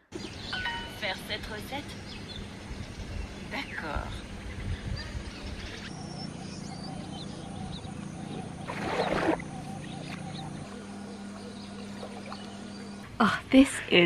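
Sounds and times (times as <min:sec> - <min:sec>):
steady low hum: 0:00.2 - 0:14.0
water splashing in a pool: 0:08.6 - 0:10.2.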